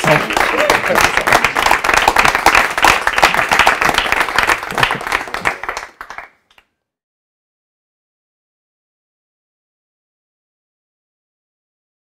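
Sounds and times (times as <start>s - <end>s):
crowd applauding: 0.0s - 6.6s.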